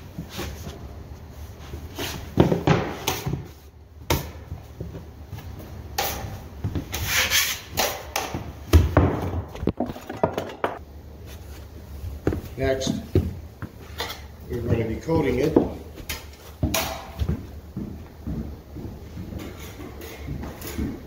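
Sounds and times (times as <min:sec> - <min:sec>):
tools knocking and scraping: 0:06.0 - 0:10.8, 0:19.3 - 0:21.0.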